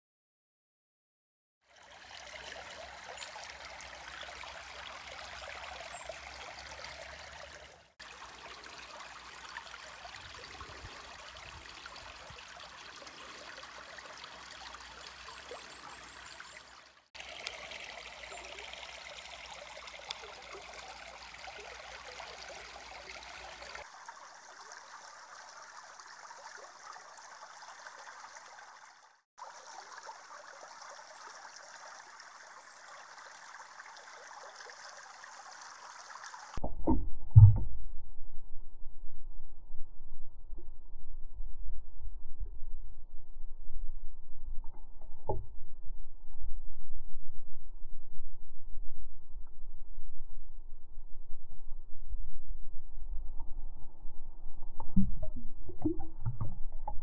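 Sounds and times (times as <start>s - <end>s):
stream water flowing: 1.6s - 37.6s, 54.8s - 57.0s
low rumble: 36.6s - 57.0s.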